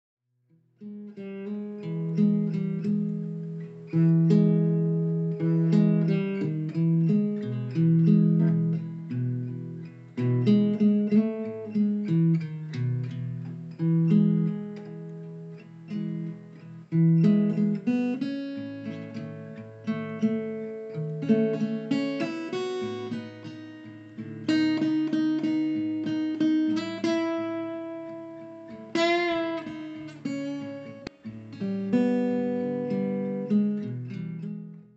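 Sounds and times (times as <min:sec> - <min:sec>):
acoustic guitar chords: 0:00.5 - 0:34.9.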